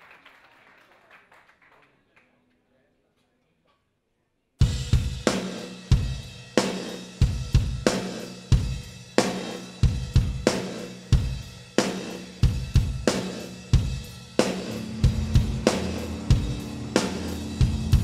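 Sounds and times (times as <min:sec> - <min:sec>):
rock drum kit beat: 0:04.6 - 0:18.0
cymbals ringing: 0:13.4 - 0:18.0
low held notes: 0:14.4 - 0:18.0.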